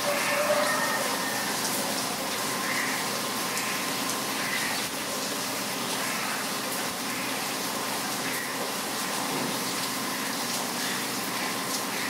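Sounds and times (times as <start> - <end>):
heavy rain: 0.0 - 12.0
faint bird calls: 2.5 - 4.9.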